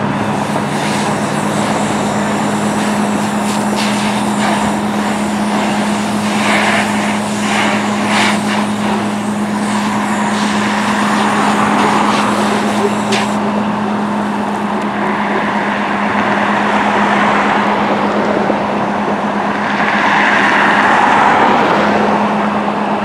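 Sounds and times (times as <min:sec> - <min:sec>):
hose spraying water: 0:00.0 - 0:14.8
fire engine running: 0:00.0 - 0:23.0.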